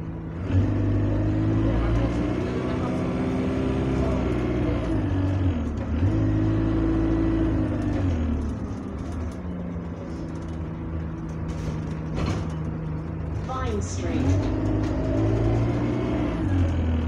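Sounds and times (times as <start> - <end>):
bus diesel engine droning: 0.0 - 17.0
short clatter: 7.8 - 16.0.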